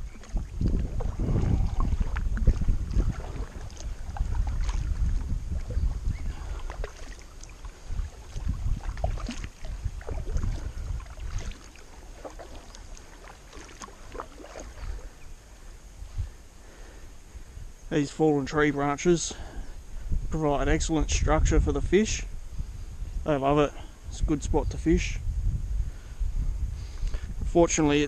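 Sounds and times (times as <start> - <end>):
paddle splashing in water: 0.0 - 15.4
wind on microphone: 0.0 - 28.0
water dripping: 0.1 - 15.0.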